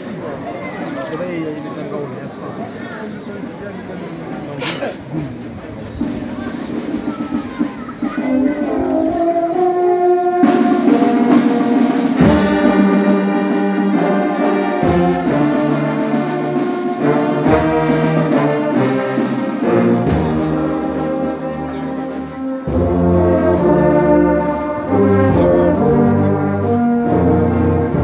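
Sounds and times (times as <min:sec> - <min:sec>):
brass band playing slow tune: 0:08.0 - 0:28.0.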